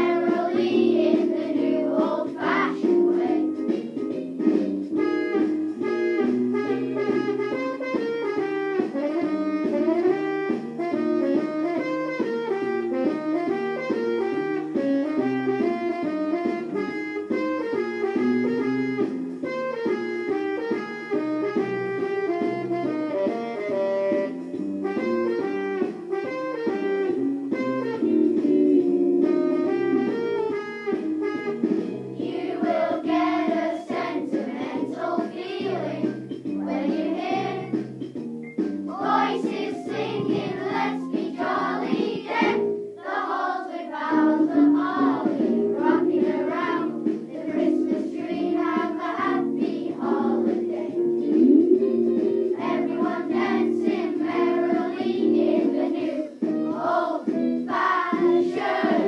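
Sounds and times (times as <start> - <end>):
children's choir singing: 0.0 - 4.4, 31.9 - 37.8, 38.9 - 59.0
plucked-string accompaniment: 51.0 - 53.1.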